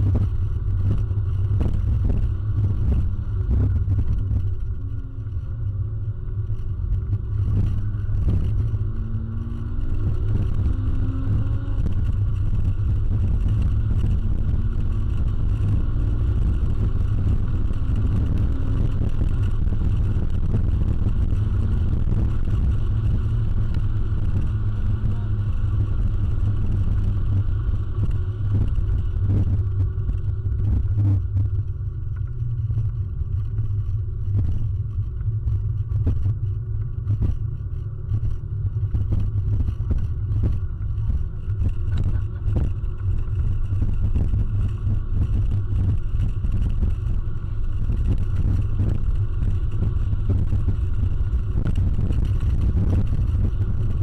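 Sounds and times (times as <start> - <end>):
car engine running: 0.0 - 54.0
road noise: 0.0 - 54.0.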